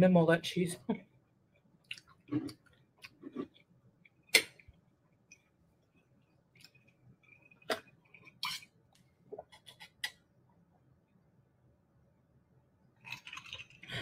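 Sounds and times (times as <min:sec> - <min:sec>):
person sipping a drink: 0:13.0 - 0:14.0.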